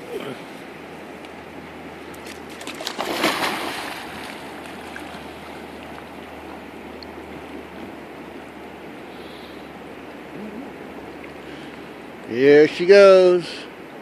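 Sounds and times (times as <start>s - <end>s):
flowing river water: 0.0s - 14.0s
dog splashing into river: 2.2s - 5.6s.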